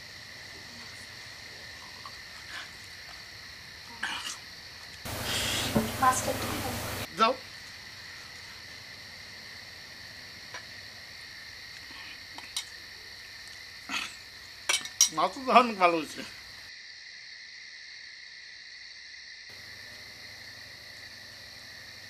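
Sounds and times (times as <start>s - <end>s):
crickets trilling: 0.0s - 22.0s.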